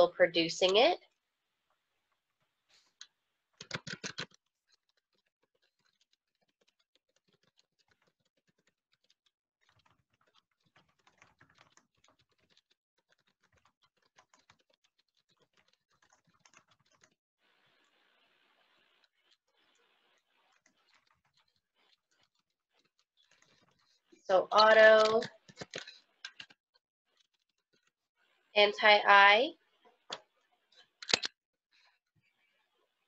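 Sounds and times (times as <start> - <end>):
typing on computer keyboard: 3.6 - 17.2, 24.5 - 26.6, 31.0 - 31.3.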